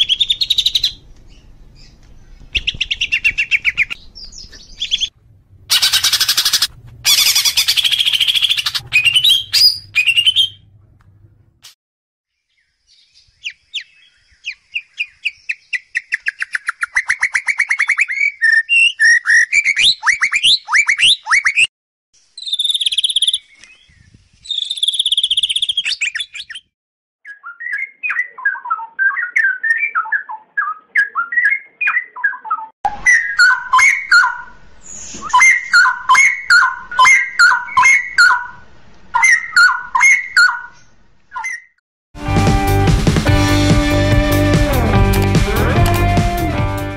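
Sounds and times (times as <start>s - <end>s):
bird singing fast trills and whistles: 0.0s - 5.1s, 5.7s - 10.6s, 12.5s - 21.7s, 22.3s - 38.5s, 41.3s - 41.8s.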